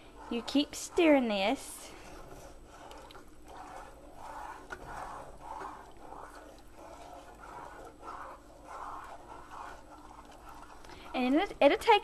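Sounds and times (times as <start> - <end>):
spoon scraping in saucepan: 0.0 - 12.0.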